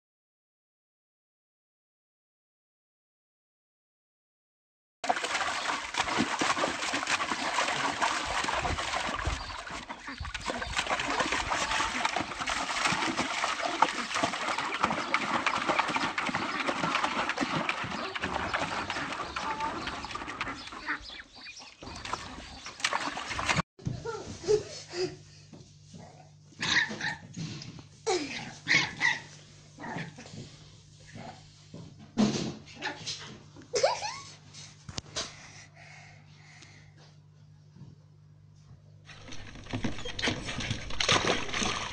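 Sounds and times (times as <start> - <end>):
water splashing: 5.0 - 23.6, 39.1 - 41.9.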